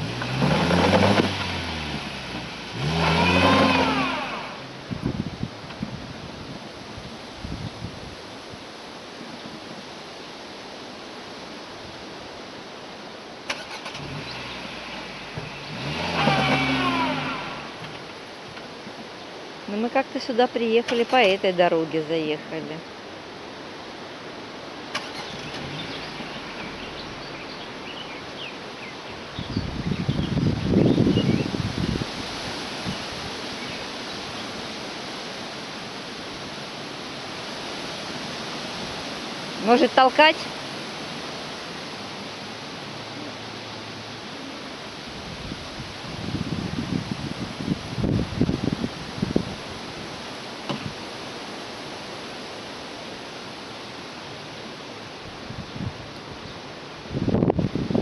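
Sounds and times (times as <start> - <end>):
car engine idling and revving: 0.0 - 7.3, 12.2 - 19.7, 24.1 - 57.1
steady outdoor hiss: 0.0 - 58.0
low rumble: 25.4 - 28.4.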